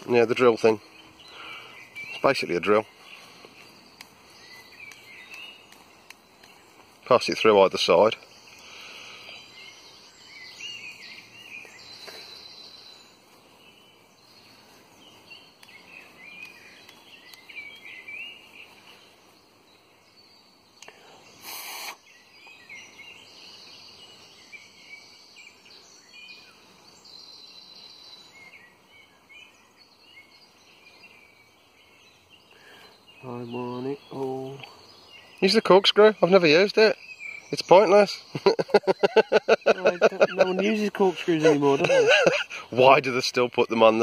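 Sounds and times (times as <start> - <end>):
birds singing and chirping: 0.0 - 44.0.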